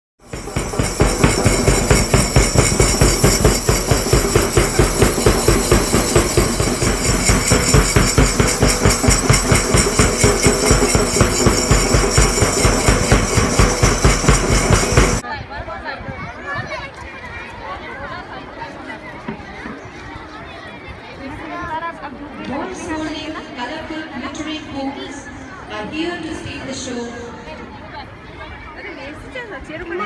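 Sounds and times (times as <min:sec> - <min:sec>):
fast loud drumbeat: 0:00.2 - 0:15.2.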